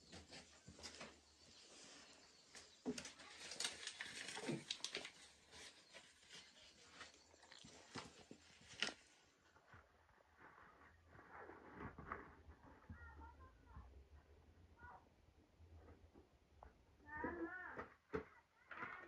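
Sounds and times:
hand kneading food mixture: 0:00.0 - 0:14.8.

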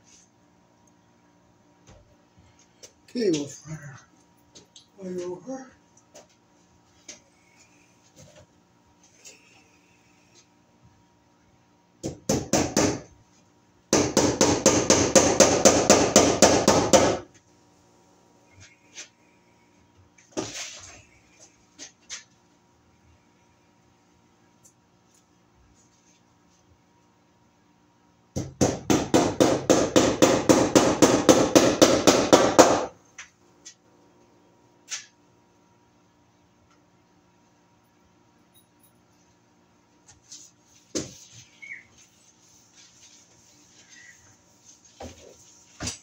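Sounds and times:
hammer striking wood: 0:12.0 - 0:13.1, 0:13.9 - 0:17.2, 0:28.4 - 0:32.9.

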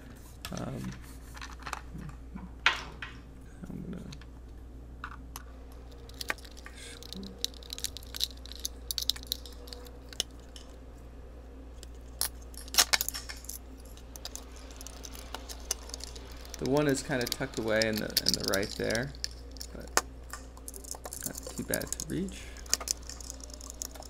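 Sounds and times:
plastic parts clicking and knocking: 0:05.9 - 0:10.6, 0:12.2 - 0:24.0.

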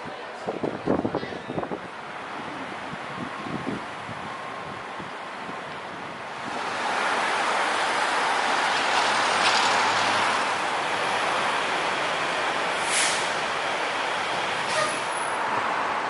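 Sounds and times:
street traffic: 0:00.0 - 0:16.0.

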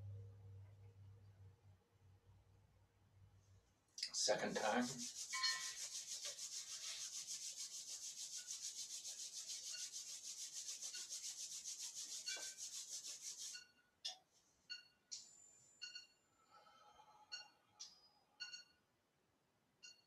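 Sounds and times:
palms rubbing together: 0:04.1 - 0:13.7.

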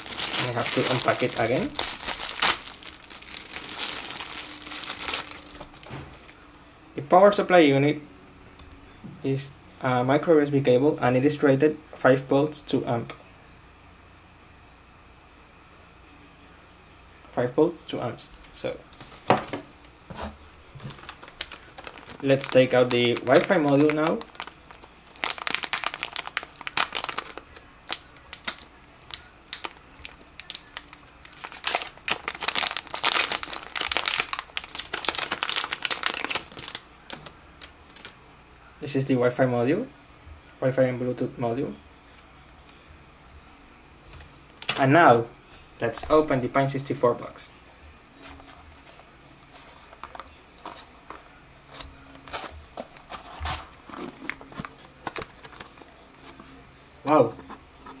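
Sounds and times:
plastic bag crinkling: 0:00.0 - 0:06.4, 0:20.8 - 0:38.2, 0:48.2 - 0:56.5
cardboard scrapes and rustles: 0:52.3 - 0:54.2.

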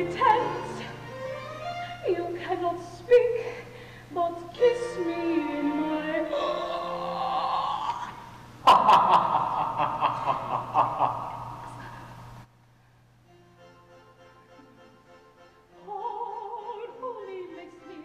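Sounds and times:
musical accompaniment: 0:00.0 - 0:02.4, 0:13.3 - 0:18.0
person singing: 0:04.2 - 0:08.2
staccato sung laughs: 0:08.6 - 0:11.8.

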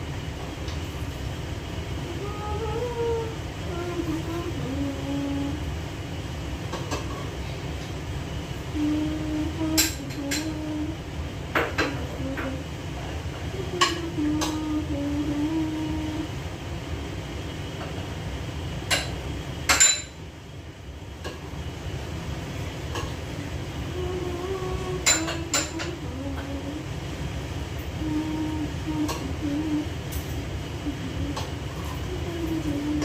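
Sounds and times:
pots and dishes clinking: 0:18.8 - 0:20.2, 0:25.0 - 0:26.0.

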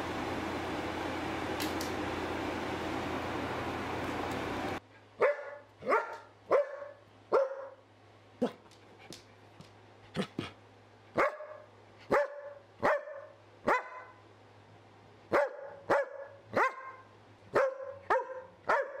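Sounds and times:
fan-like hiss: 0:00.0 - 0:15.4
dog barking: 0:05.2 - 0:07.8, 0:11.2 - 0:14.2, 0:15.3 - 0:19.0.

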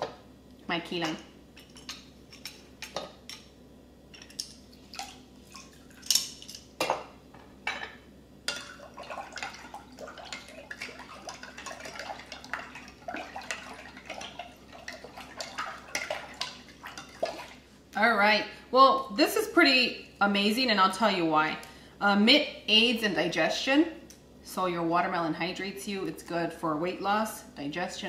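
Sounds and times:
liquid swishing: 0:08.6 - 0:17.8.

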